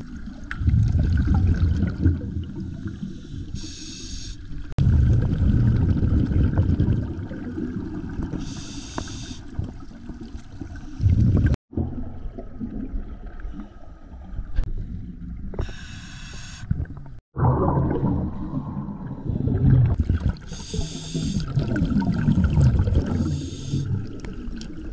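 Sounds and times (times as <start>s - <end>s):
gurgling exhaled bubbles: 0.0s - 3.1s, 4.8s - 13.6s, 16.8s - 24.9s
hissing regulator inhalations: 3.0s - 4.4s, 8.4s - 9.5s, 15.6s - 16.7s, 20.5s - 21.5s, 23.1s - 23.9s.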